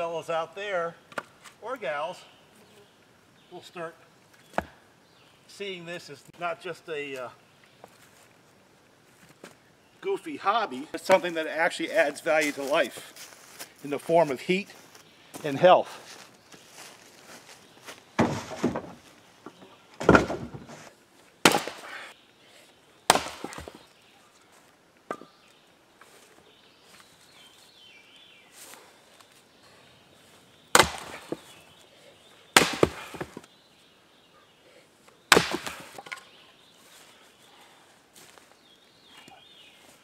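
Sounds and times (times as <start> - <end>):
axe chopping firewood: 20.0 - 20.7, 21.4 - 22.1, 23.1 - 23.8, 30.7 - 31.6, 32.6 - 33.5, 35.3 - 36.2.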